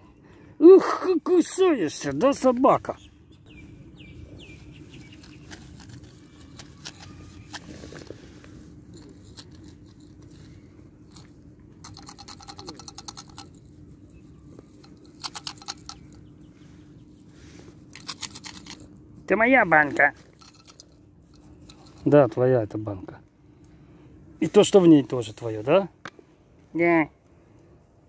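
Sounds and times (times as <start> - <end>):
faint steady hum: 0.0 - 28.0
plastic jar scraped and rattled: 5.0 - 16.2, 17.8 - 18.9.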